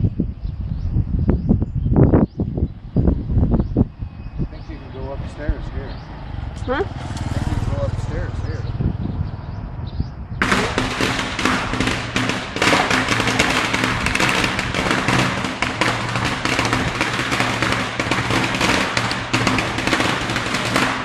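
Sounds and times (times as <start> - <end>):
firecrackers crackling: 6.7 - 8.0, 10.4 - 21.0.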